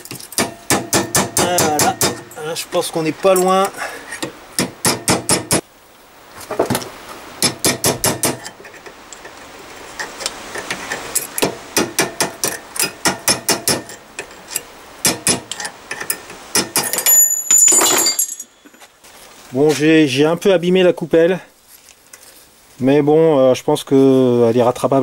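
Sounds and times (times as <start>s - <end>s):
hammer striking metal: 0.1s - 2.4s, 4.6s - 5.6s, 7.4s - 8.5s, 11.3s - 14.0s, 15.0s - 15.6s, 16.5s - 18.5s.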